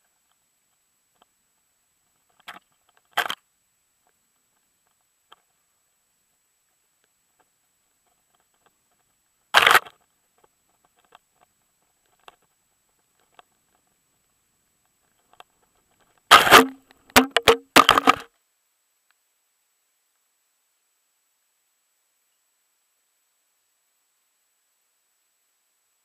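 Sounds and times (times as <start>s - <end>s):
faint ticks: 0.0s - 17.6s, 18.2s - 19.4s, 20.0s - 20.4s
camera bumping: 9.6s - 9.9s, 16.3s - 18.3s
camera knocks and scrapes: 16.3s - 18.3s.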